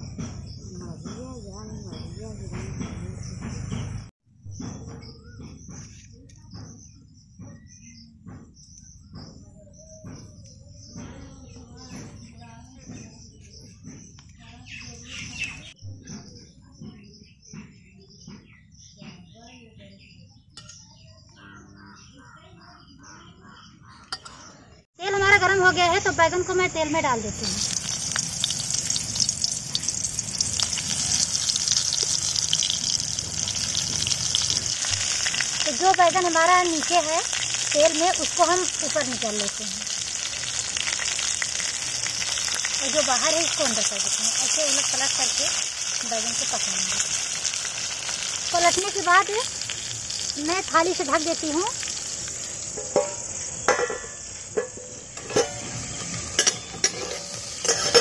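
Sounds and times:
crickets chirring: 25.0s - 58.0s
vegetables sizzling in hot oil: 25.0s - 58.0s.

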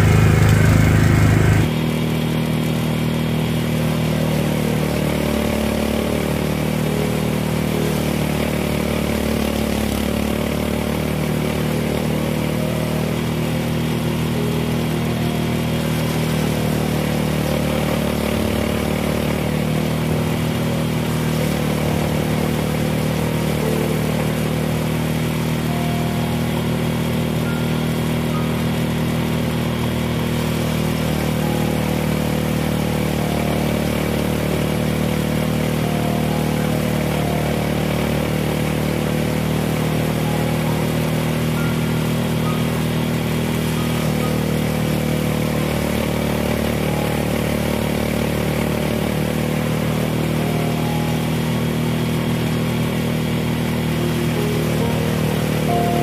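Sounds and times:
small engine running: 0.0s - 56.0s.

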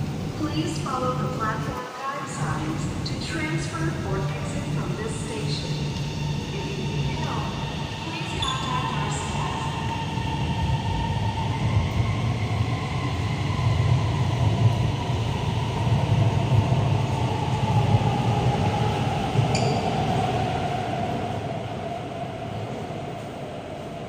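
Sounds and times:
train low rumble: 0.0s - 24.0s
brief high squeak: 19.5s - 19.8s.

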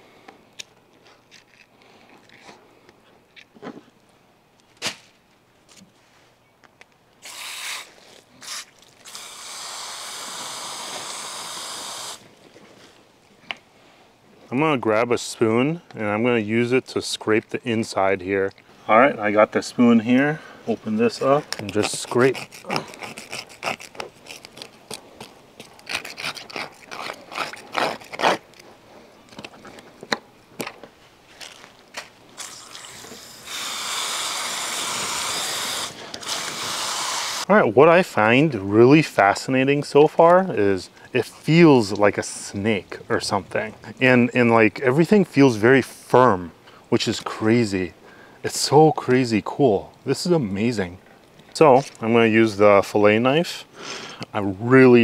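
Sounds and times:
hose nozzle spraying: 7.2s - 12.2s, 32.4s - 37.5s.

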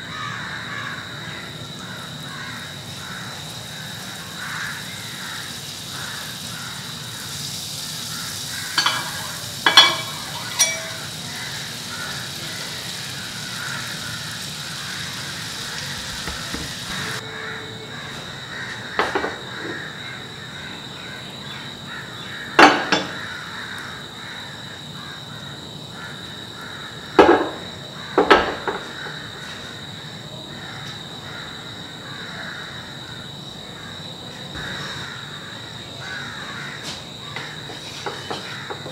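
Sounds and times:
butter sizzling in frying pan: 1.7s - 17.2s.

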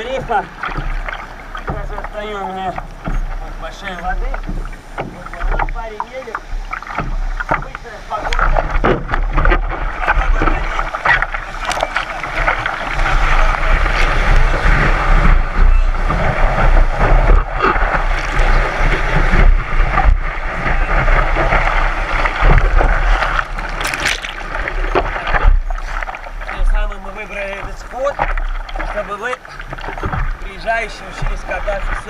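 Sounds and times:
paddling splashes: 0.0s - 32.0s
wind buffeting microphone: 8.4s - 28.8s
rushing whitewater foam: 9.7s - 32.0s.

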